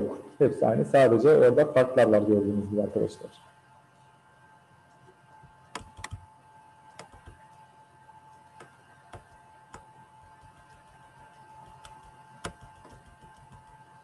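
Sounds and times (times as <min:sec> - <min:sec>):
faint steady hum: 0:00.0 - 0:14.0
computer mouse clicks: 0:05.7 - 0:06.3, 0:06.9 - 0:07.7, 0:08.3 - 0:13.8.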